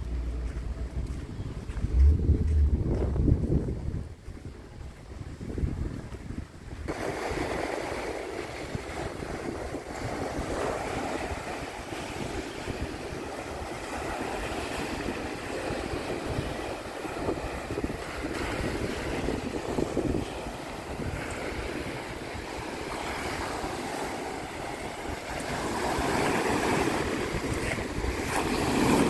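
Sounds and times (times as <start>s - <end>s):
wind buffeting microphone: 0.0s - 29.0s
sea waves washing onto beach: 6.8s - 29.0s.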